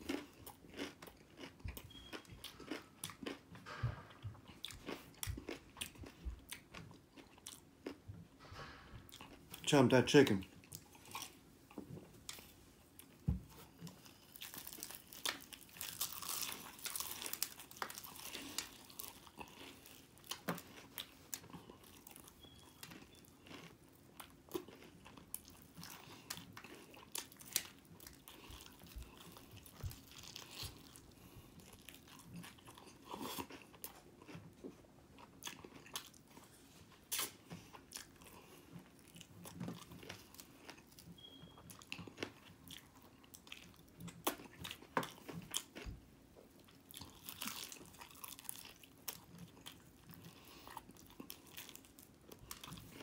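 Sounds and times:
crunchy bites and chewing: 0.0s - 3.8s, 4.5s - 8.0s, 12.3s - 34.5s, 46.6s - 53.0s.

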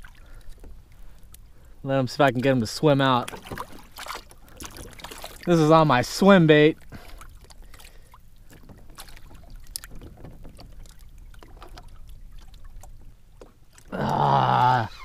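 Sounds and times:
man grunting with effort: 13.9s - 15.0s.

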